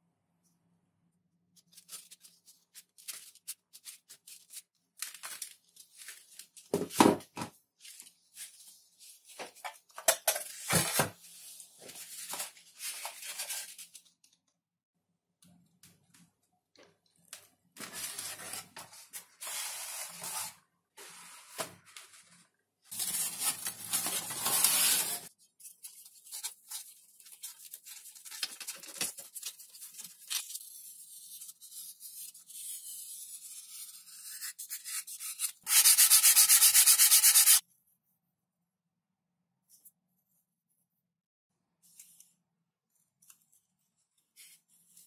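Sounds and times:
hands scratching foam sheets: 34.1s - 37.6s
sandpaper on foam: 34.1s - 37.6s.

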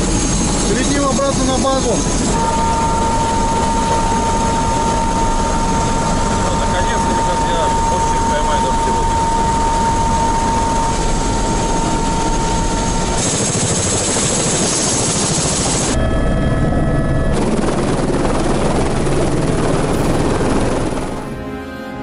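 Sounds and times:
helicopter turbine and rotor: 0.0s - 21.6s
high whine: 0.0s - 22.0s
music: 19.8s - 22.0s.

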